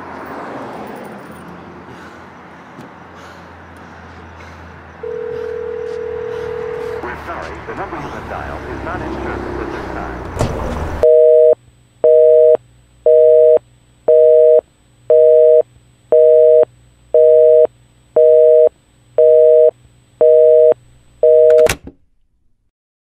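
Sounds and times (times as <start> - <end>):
telephone busy signal beeps: 5.0 - 7.0, 11.0 - 15.6, 16.2 - 21.7
telephone line click: 21.2 - 21.8.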